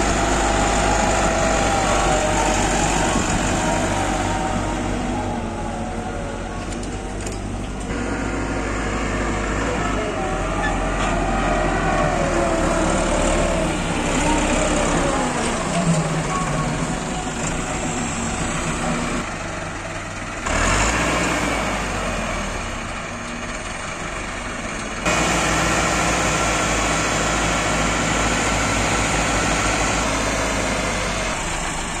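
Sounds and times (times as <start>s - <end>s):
tractor diesel engine running: 0.0s - 32.0s.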